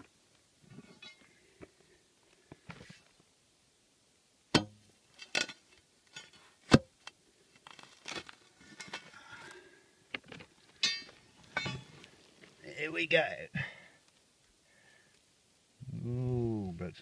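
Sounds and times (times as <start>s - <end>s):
pick striking rocky ground: 4.5s - 7.0s, 10.2s - 12.1s.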